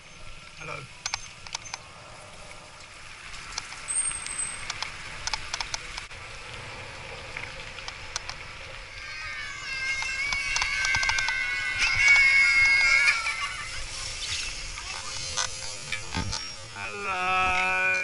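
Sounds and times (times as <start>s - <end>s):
bicycle ride road and wind noise: 0.0s - 18.0s
bicycle clicks and rattles: 3.4s - 6.1s, 9.9s - 12.3s.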